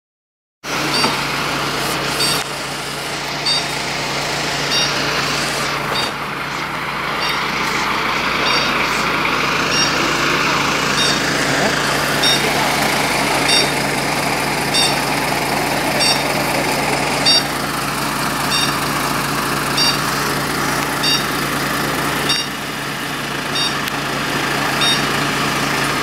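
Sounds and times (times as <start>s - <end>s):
fire engines idling: 0.6s - 26.0s
short high beep: 0.9s - 1.2s, 2.2s - 2.4s, 3.4s - 3.8s, 4.7s - 5.0s, 6.0s - 6.2s, 7.2s - 7.6s, 8.4s - 8.9s, 9.7s - 10.1s, 10.9s - 11.4s, 12.2s - 12.5s, 13.4s - 13.8s, 14.7s - 15.1s, 16.0s - 16.3s, 17.2s - 17.5s, 18.5s - 18.8s, 19.8s - 20.1s, 21.0s - 21.3s, 22.3s - 22.6s, 23.6s - 23.8s, 24.8s - 25.1s.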